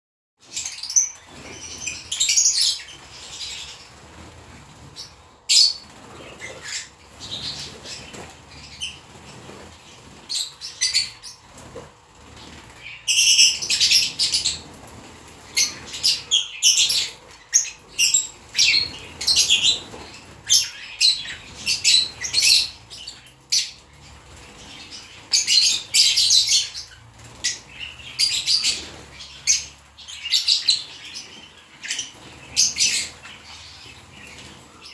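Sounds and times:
birds chattering shrill chirps: 0.4 - 34.9
wings fluttering: 0.4 - 34.9.

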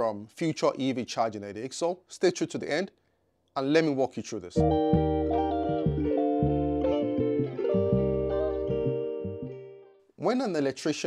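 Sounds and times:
low bass line: 4.6 - 9.6
plucked guitar chords: 4.6 - 10.0.

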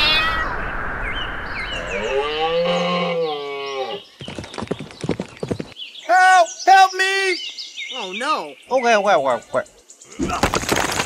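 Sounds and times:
cow mooing: 2.0 - 4.0.

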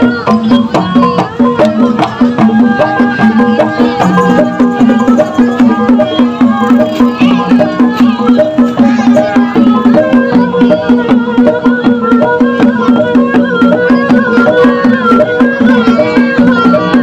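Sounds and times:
drums and gongs street music: 0.0 - 17.0.

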